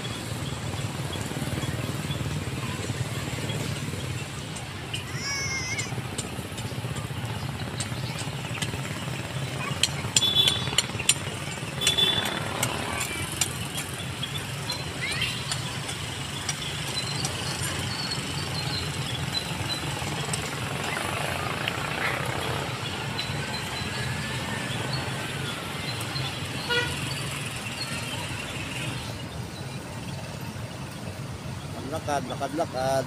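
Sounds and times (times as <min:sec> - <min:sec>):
traffic rumble: 0:00.0 - 0:33.0
sharp clicks and taps: 0:05.7 - 0:09.0, 0:09.6 - 0:22.1.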